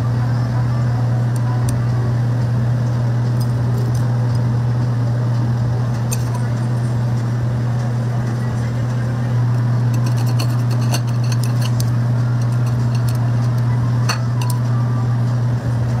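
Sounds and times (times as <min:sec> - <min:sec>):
low hum: 0:00.0 - 0:16.0
chopsticks clinking on dishes: 0:09.9 - 0:13.3.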